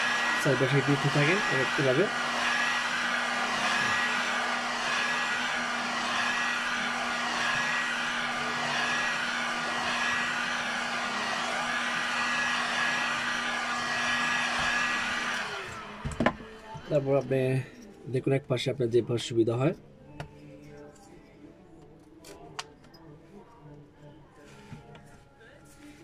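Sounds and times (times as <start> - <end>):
heat gun blowing air: 0.0 - 17.1.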